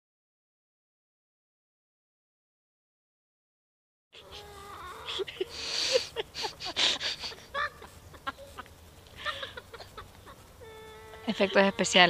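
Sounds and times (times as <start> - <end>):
chickens clucking: 4.2 - 12.0.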